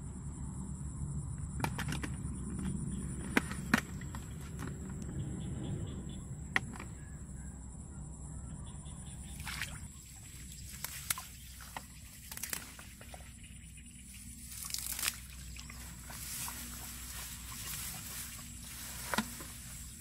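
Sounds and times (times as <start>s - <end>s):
faint high whine: 0.0s - 20.0s
steady low rumble: 0.0s - 20.0s.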